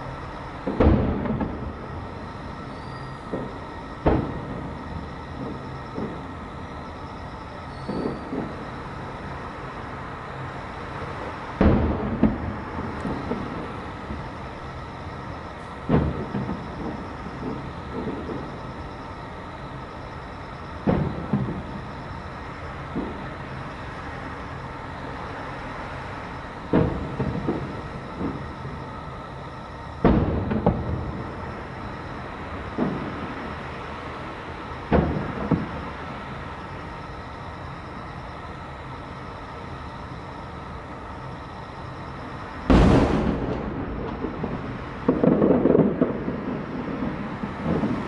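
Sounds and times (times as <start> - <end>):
steady low hum: 0.0 - 48.0
distant firework shells bursting: 0.1 - 9.0, 11.6 - 23.7, 26.6 - 33.7, 42.6 - 48.0
rolling echo: 42.7 - 48.0.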